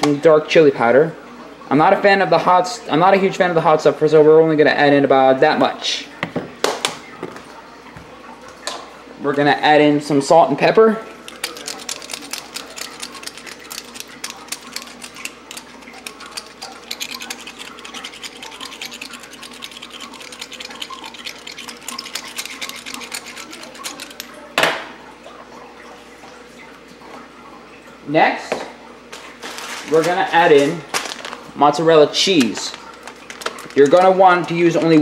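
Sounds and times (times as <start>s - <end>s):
pepper mill grinding: 11.3s - 24.4s.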